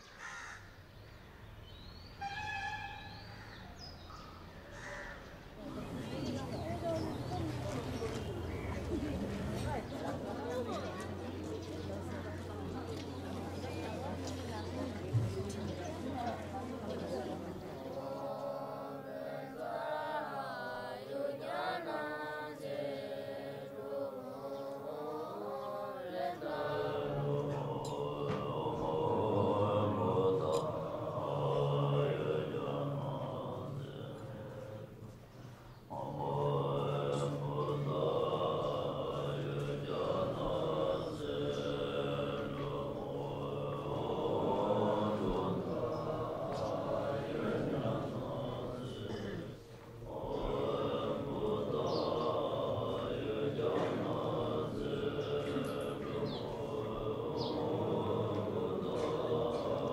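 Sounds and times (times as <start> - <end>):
small birds chirping: 3.1 - 19.6, 35.4 - 47.2, 50.2 - 59.9
monks chanting together: 3.8 - 59.9.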